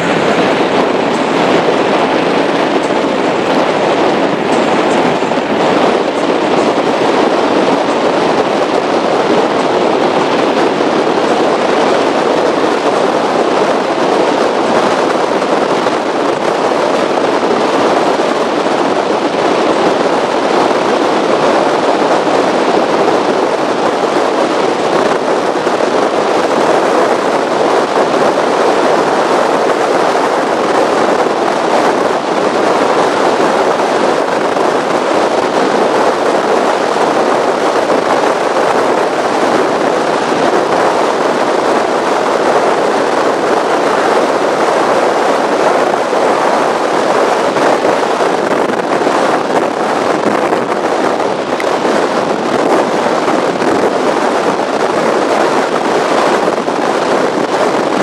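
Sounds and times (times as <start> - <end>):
powerboat running over choppy water: 0.0 - 58.0.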